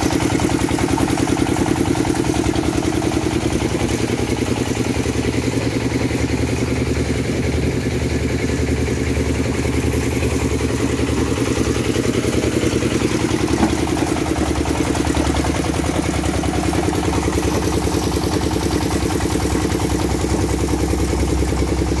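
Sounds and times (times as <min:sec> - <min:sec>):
stone crusher running: 0:10.8 - 0:21.0.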